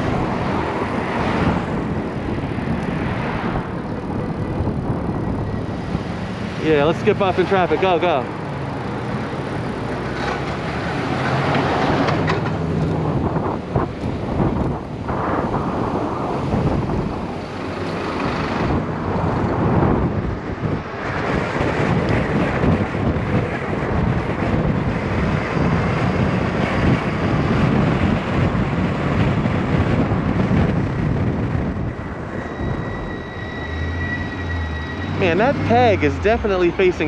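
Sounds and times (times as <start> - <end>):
road and traffic noise: 0.0 - 37.0
wind rushing over microphone: 0.0 - 37.0.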